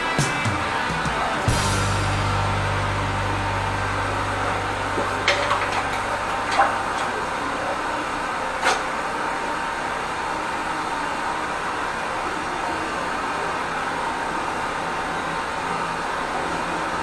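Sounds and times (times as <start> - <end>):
drain jetter rushing: 0.0 - 17.0
low hum: 0.6 - 9.6.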